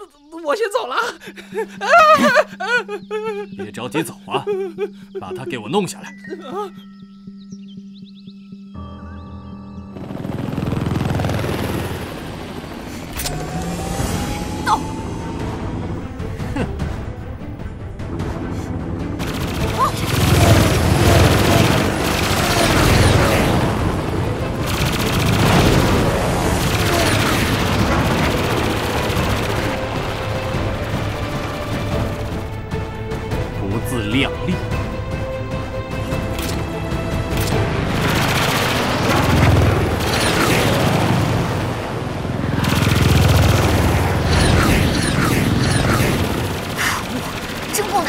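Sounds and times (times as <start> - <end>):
cartoon machine-gun fire: 19.2 - 23.6, 44.2 - 47.4.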